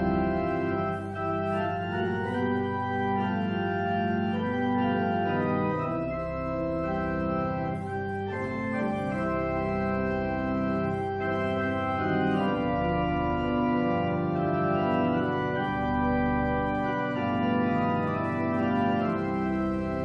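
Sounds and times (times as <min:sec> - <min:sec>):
organ playing sustained chords: 0:00.0 - 0:20.0.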